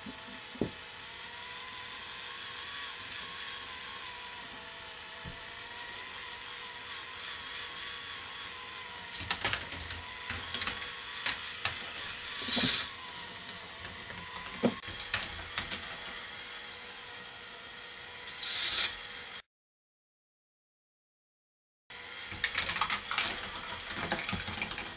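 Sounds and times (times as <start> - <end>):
motor lift whirring: 2.2 - 19.4
balls clattering on plastic track: 9.2 - 16.2, 22.3 - 24.9.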